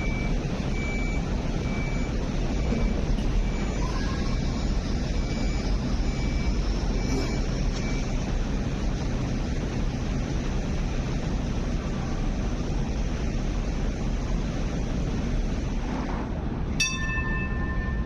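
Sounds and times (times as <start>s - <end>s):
low outdoor rumble: 0.0s - 18.0s
steady ringing tone: 16.7s - 18.0s.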